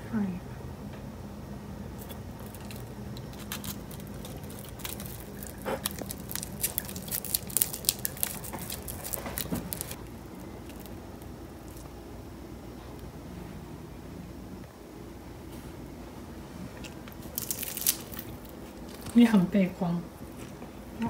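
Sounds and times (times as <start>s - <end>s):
nori sheet crackling: 2.4s - 11.9s.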